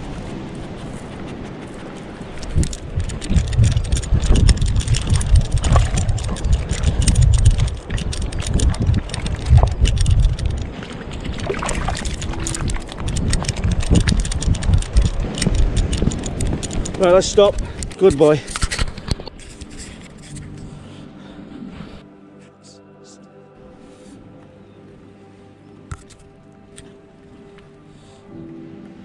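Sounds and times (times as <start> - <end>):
wind buffeting microphone: 0.0 - 20.9
fur and grass brushing microphone: 0.0 - 22.1.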